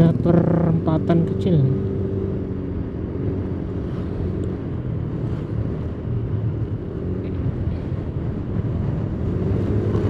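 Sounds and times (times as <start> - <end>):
road and wind noise: 0.0 - 10.0.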